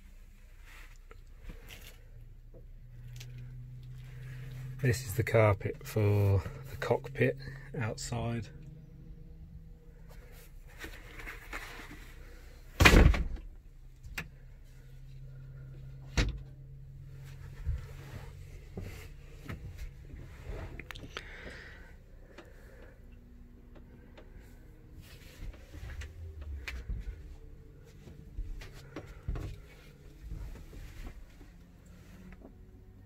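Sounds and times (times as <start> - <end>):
loud thump: 12.8 - 13.4.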